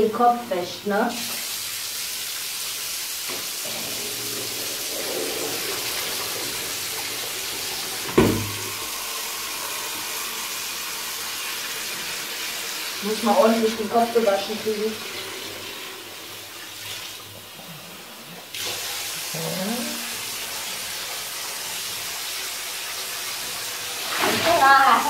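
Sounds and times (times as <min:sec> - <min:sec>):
water running: 0:00.0 - 0:25.0
sharp thump: 0:08.1 - 0:08.6.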